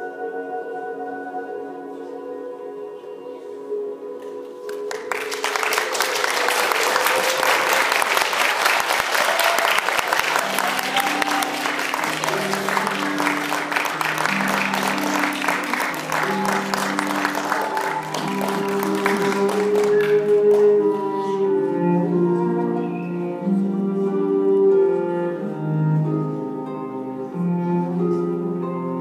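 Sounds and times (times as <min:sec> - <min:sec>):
audience applauding: 0:04.7 - 0:21.0
instrumental music with held notes: 0:09.8 - 0:29.0.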